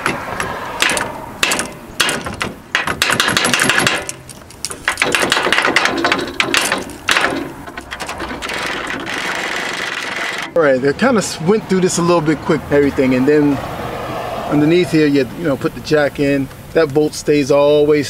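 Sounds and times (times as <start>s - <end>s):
hand tools clicking and knocking: 0.0s - 10.6s.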